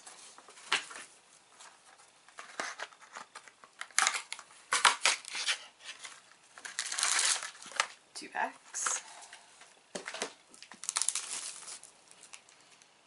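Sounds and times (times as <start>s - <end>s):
paper rustling: 10.0s - 12.8s.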